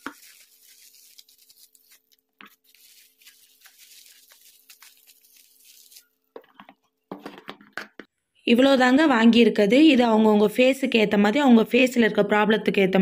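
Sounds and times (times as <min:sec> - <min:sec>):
bubble wrap crinkling: 0:00.0 - 0:07.0.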